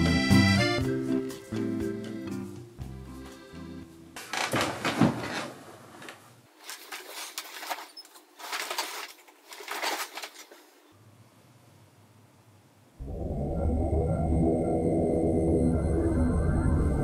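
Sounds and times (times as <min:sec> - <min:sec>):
bedsheets rustling: 0:04.2 - 0:10.9.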